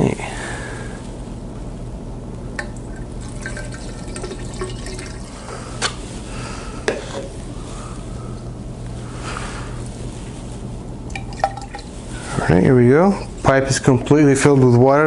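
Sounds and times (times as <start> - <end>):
water pouring into a pipe: 2.6 - 5.6.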